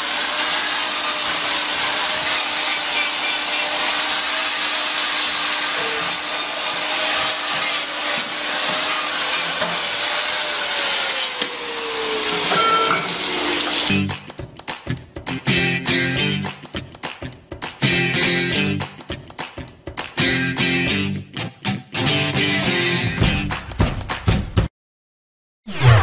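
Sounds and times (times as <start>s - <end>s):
angle grinder rasping on hoof: 0.0s - 13.9s
music: 13.9s - 24.7s.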